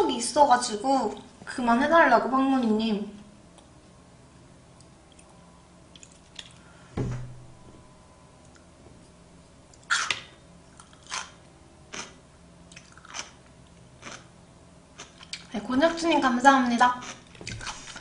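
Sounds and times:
person chewing wetly: 0:05.9 - 0:06.6, 0:10.7 - 0:14.3, 0:15.0 - 0:15.5
dull thump: 0:07.0 - 0:07.8.

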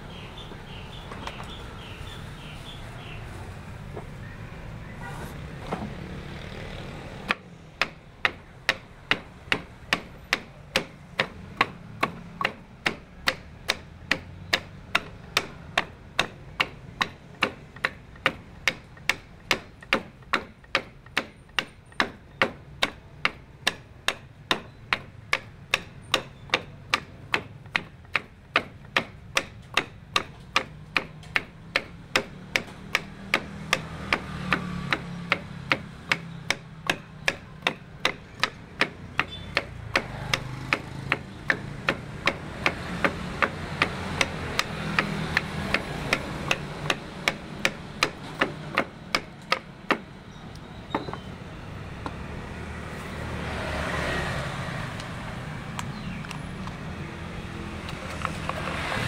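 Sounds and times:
wooden pestle pounding in mortar: 0:07.3 - 0:50.2.

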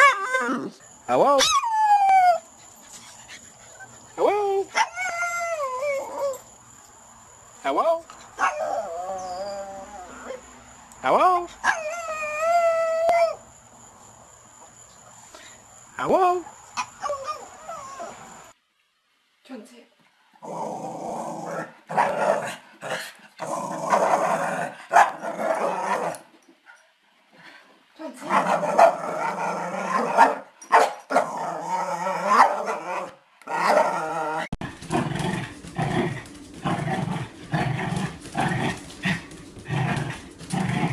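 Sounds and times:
small dog growling long: 0:20.4 - 0:26.2, 0:31.2 - 0:40.9.

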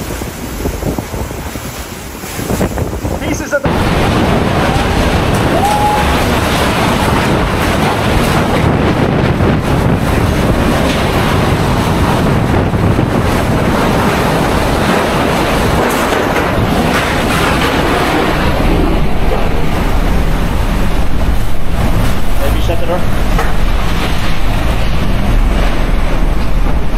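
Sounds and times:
strong wind buffeting microphone: 0:00.0 - 0:26.9.

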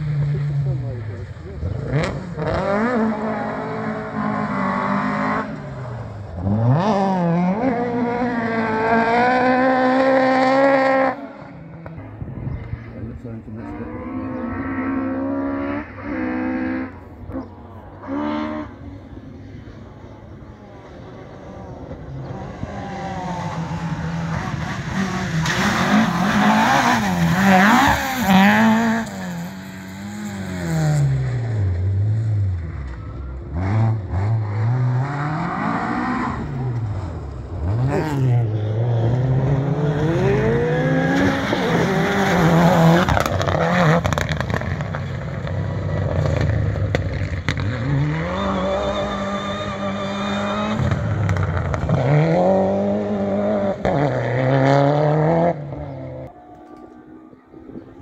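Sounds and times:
rally car engine revving: 0:00.0 - 0:58.0
second rally car revving: 0:00.0 - 0:58.0.

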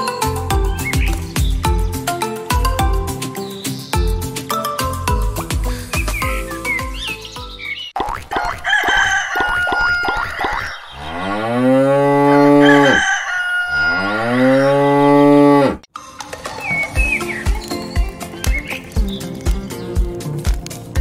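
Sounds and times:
hens clucking: 0:08.1 - 0:11.1
cow mooing: 0:11.0 - 0:15.8.

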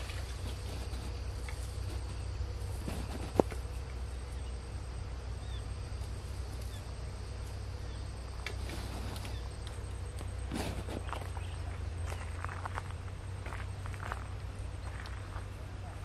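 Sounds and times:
steady low rumble: 0:00.0 - 0:16.0
faint bird chirps: 0:03.7 - 0:05.8, 0:11.0 - 0:12.6.

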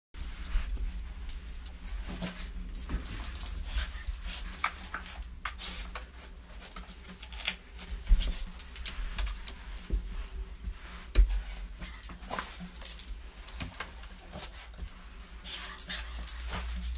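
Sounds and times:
dog collar jingling: 0:00.2 - 0:09.0, 0:11.8 - 0:13.2, 0:15.7 - 0:16.9.

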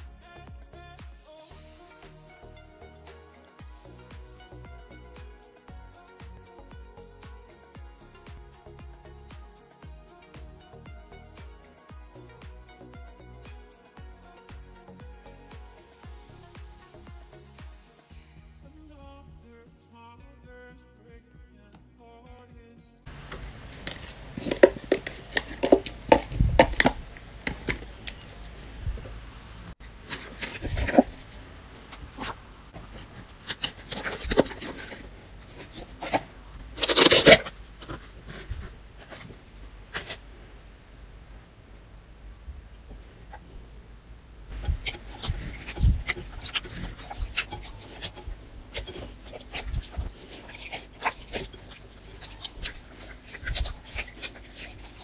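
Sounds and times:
hands squelching slime: 0:23.1 - 0:29.0, 0:29.8 - 0:39.3, 0:44.5 - 0:55.0.

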